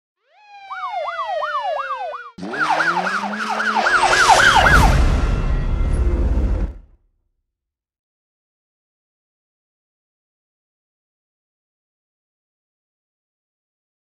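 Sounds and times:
emergency vehicle siren yelp: 0:00.2 - 0:06.6
low rumble: 0:04.0 - 0:07.0.

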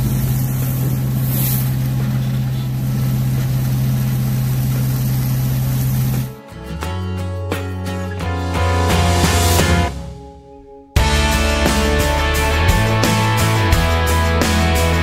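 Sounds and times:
nozzle spraying slurry: 0:00.0 - 0:06.3
engine and pump humming: 0:00.0 - 0:06.4.

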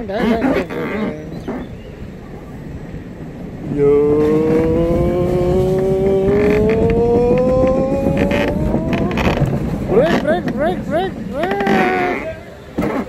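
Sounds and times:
wheels whining: 0:00.0 - 0:13.0
cart rolling on track: 0:03.1 - 0:13.0.

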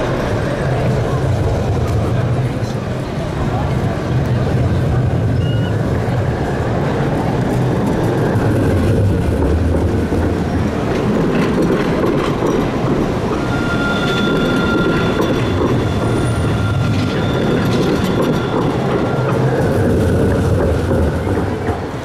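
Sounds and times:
tram wheels rolling on rails: 0:00.0 - 0:22.0.

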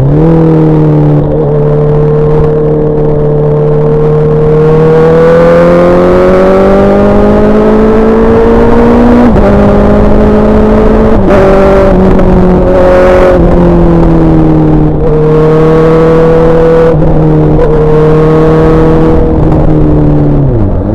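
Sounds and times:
motorcycle engine accelerating: 0:00.0 - 0:20.9.

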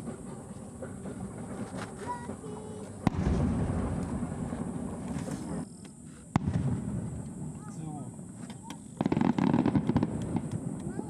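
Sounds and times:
firework shell bang: 0:00.0 - 0:05.6.

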